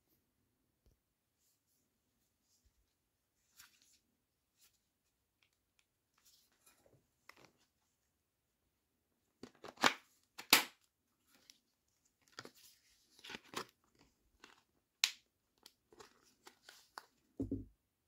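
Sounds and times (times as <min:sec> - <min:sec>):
plastic knocks and scrapes: 0:17.4 - 0:17.7.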